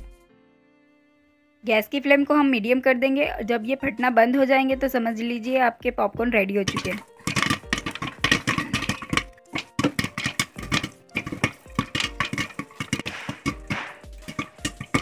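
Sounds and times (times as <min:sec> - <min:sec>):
popcorn popping in covered pot: 0:06.4 - 0:15.0.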